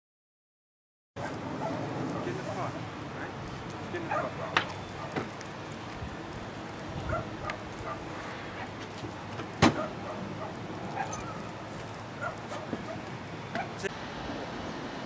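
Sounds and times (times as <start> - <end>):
faint dog barking: 1.2 - 5.3, 7.0 - 8.8, 9.7 - 13.9
car door opening: 8.9 - 9.9.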